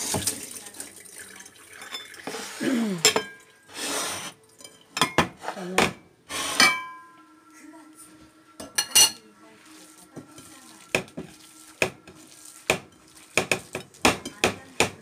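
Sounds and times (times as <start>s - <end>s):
mixing bowl knocking on countertop: 10.1s - 15.0s.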